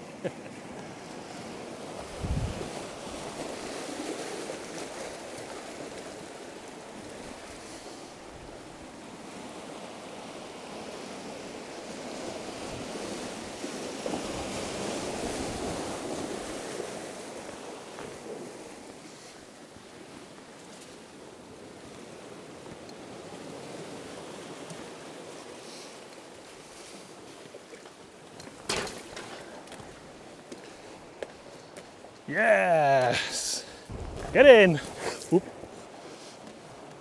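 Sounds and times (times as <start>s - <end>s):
surf washing over boulders: 0.1s - 20.2s, 31.2s - 37.0s
wind on microphone: 2.0s - 2.8s, 33.9s - 35.0s.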